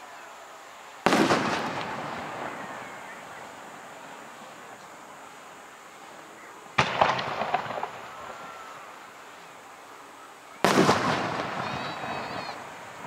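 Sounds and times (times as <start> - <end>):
sharp firework pops: 1.0 - 3.5, 6.8 - 8.4, 10.6 - 12.6
firework shell bursting bang: 6.8 - 8.0.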